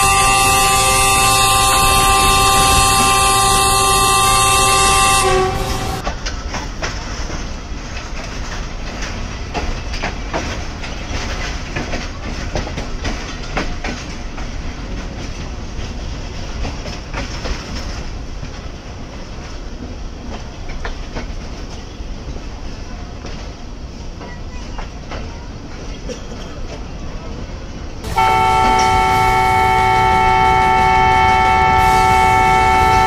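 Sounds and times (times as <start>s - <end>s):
train horn blast: 0.0s - 6.0s, 28.0s - 33.0s
train rumble: 0.0s - 33.0s
train wheels clicking over joints: 0.0s - 33.0s.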